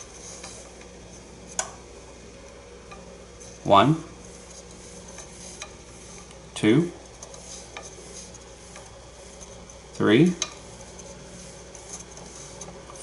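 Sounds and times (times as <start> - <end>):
thread winder whine: 0.0 - 13.0.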